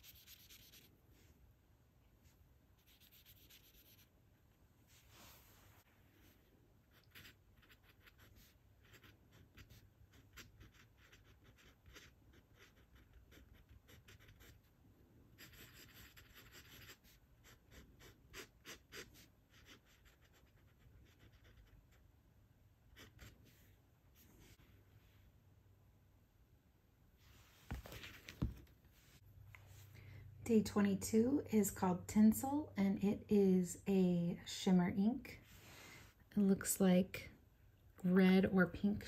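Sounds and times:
pen scratching on paper: 0.0 - 0.9, 2.8 - 4.1, 6.9 - 14.7, 15.4 - 22.0, 22.9 - 23.4.

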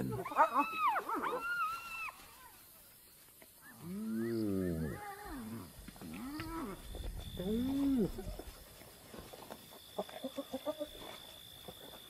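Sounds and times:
hyenas calling: 0.0 - 2.0.

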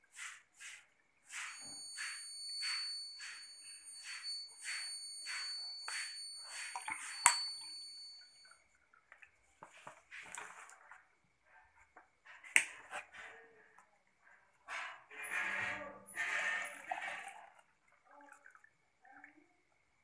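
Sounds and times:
high-pitched buzzer tone: 1.5 - 7.7.

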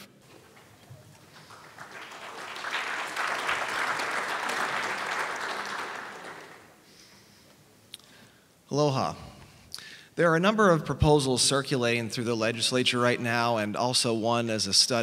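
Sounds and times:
audience applauding: 0.4 - 6.8.

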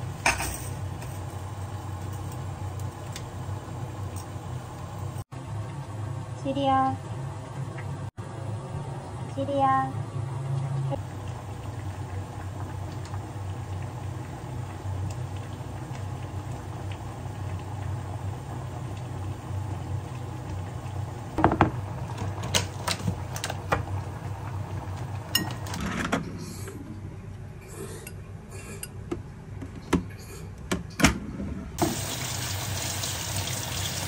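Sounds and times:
low kitchen hum: 0.0 - 34.0.

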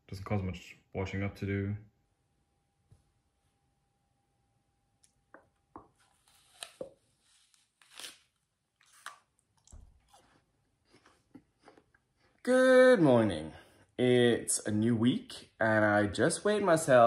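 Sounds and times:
apple crunching: 6.0 - 12.0.

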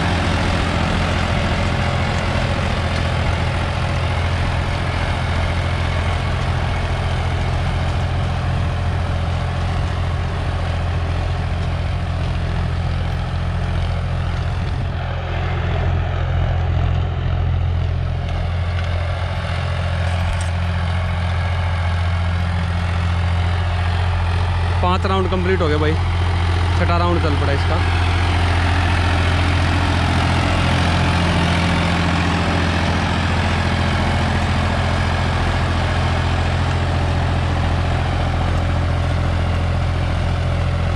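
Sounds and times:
diesel tractor engine running: 0.0 - 40.9.

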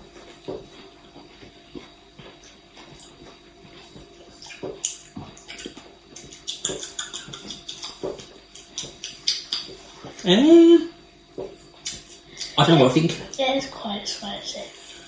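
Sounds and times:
wet crunchy chewing: 0.0 - 10.3.

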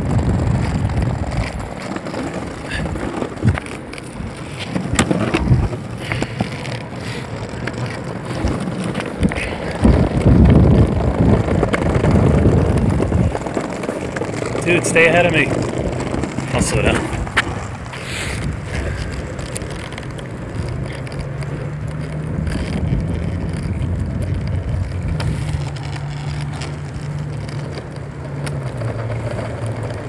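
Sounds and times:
skateboard wheels rumbling: 0.0 - 30.0
wheels clicking over joints: 0.0 - 30.0.

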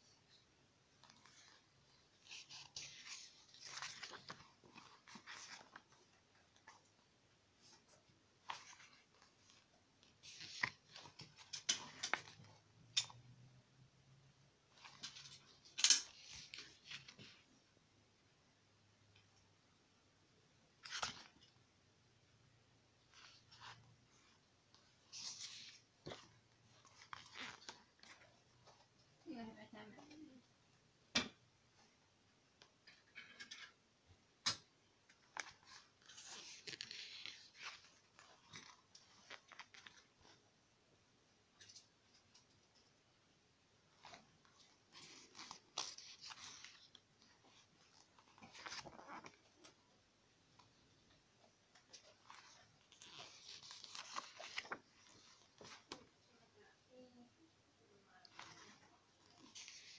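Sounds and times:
paper pages rustling: 0.3 - 7.0, 7.6 - 12.7, 14.7 - 17.5, 20.8 - 21.6, 23.0 - 28.9, 35.1 - 40.4, 43.9 - 49.8, 51.7 - 56.2, 58.2 - 59.9.

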